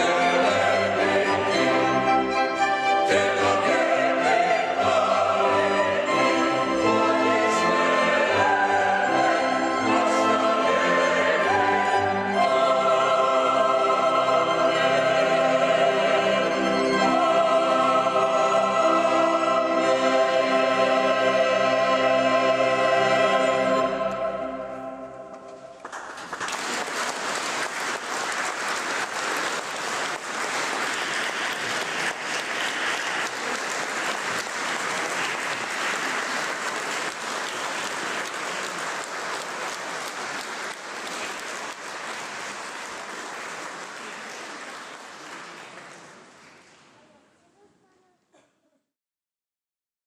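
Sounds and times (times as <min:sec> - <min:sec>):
choir with accompaniment: 0:00.0 - 0:25.8
audience applauding: 0:25.7 - 0:47.0.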